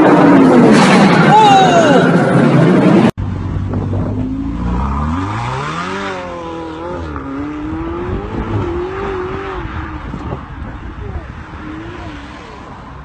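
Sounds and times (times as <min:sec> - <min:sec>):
sports car engine revving: 0:03.6 - 0:10.9.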